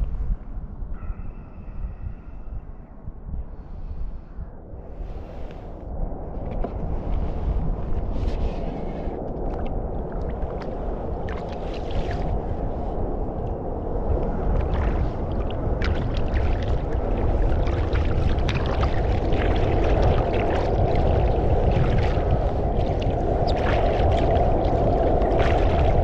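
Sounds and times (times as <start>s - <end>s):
steady low water rush: 4.8s - 26.0s
water gurgling against kayak: 8.7s - 26.0s
paddle splashes and drips: 8.9s - 12.4s, 14.1s - 26.0s.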